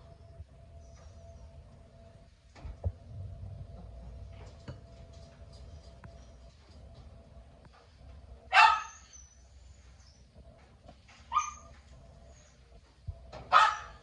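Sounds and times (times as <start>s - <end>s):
dog barking: 8.5s - 9.1s, 11.3s - 11.7s, 13.5s - 14.0s.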